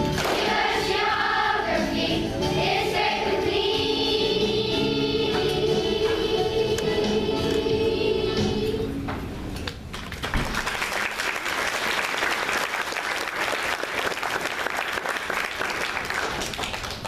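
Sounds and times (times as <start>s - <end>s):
audience clapping: 0.1s - 0.8s, 9.9s - 17.0s.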